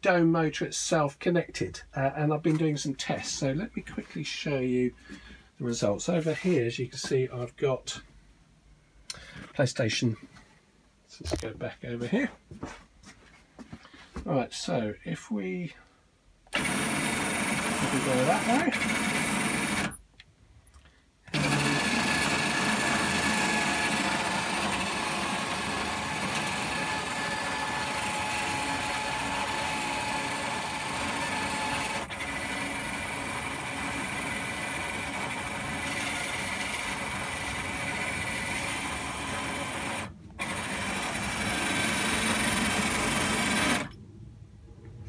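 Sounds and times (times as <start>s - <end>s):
motor whine over gear noise: 16.5s - 20.0s, 21.3s - 44.0s.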